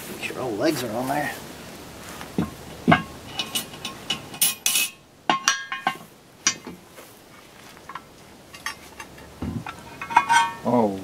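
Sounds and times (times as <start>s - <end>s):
metal lid scrape: 3.3s - 5.0s, 9.7s - 10.7s
metal lid clinks: 9.9s - 10.7s.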